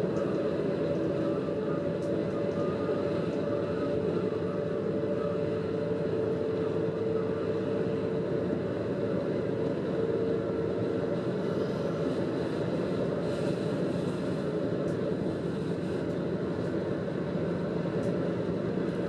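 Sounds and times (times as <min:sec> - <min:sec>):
diesel railcar engine and rolling: 0:00.0 - 0:19.0
steady whine: 0:00.0 - 0:19.0.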